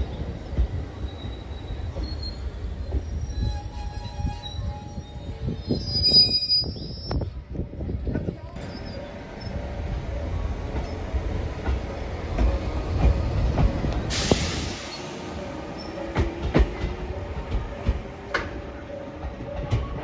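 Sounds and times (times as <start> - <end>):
train low rumble: 0.0 - 20.0
short hiss: 14.1 - 15.2
train wheels clacking over rail joints: 16.1 - 18.6.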